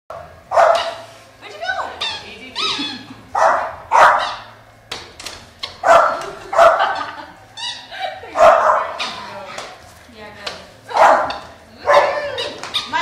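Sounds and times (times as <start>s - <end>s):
dog barking: 0.1s - 1.1s, 3.3s - 4.6s, 5.8s - 7.1s, 8.4s - 9.2s, 10.9s - 13.0s
dog whining: 1.8s - 4.6s, 5.6s - 9.6s, 10.9s - 13.0s.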